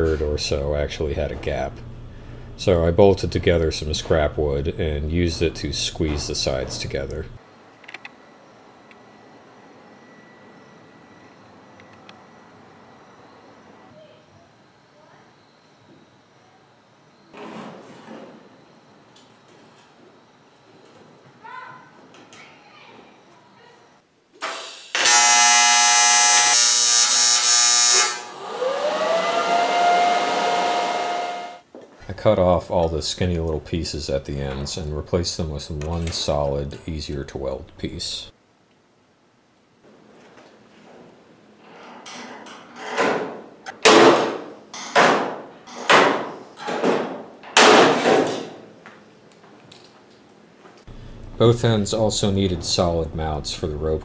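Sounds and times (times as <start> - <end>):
welding arc buzzing: 24.4 - 31.6, 50.9 - 52.8
rising whine: 26.5 - 31.6, 50.9 - 53.8.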